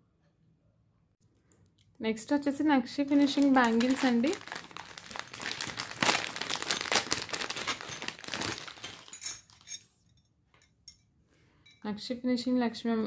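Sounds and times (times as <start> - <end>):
plastic packet crinkling: 2.4 - 9.8.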